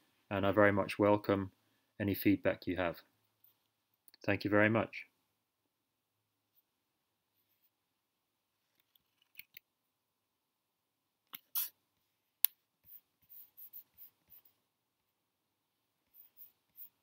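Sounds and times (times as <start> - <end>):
short scratchy rubs: 12.8 - 14.6, 16.0 - 17.0.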